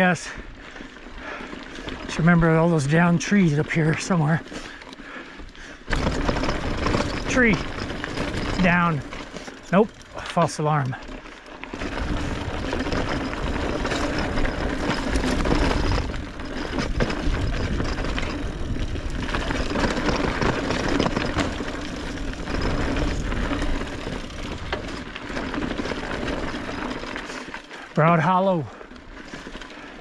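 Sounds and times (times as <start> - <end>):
bike rattling over bumps: 0.0 - 30.0
wind buffeting microphone: 11.8 - 25.0.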